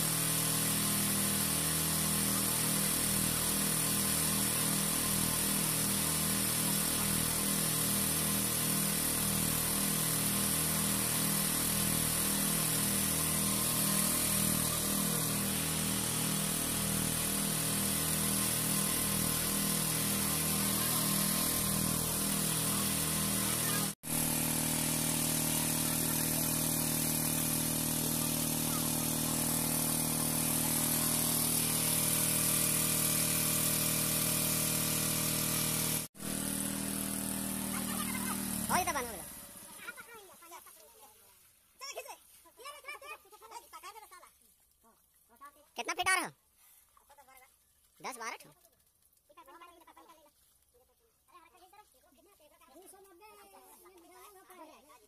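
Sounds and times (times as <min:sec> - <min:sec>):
engine running with pulsing note: 0:13.0 - 0:39.8.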